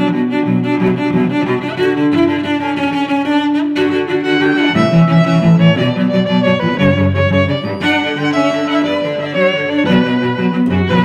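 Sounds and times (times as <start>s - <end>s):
violin and cello slow held notes: 3.4s - 11.0s.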